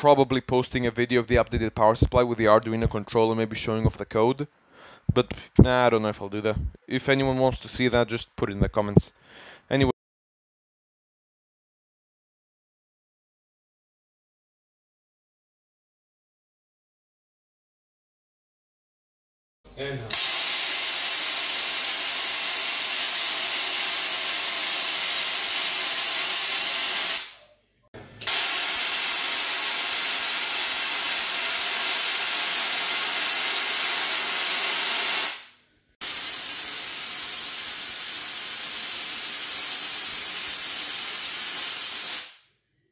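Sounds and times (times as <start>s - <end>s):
tesla coil sparks hissing: 20.1s - 27.4s, 28.2s - 42.4s.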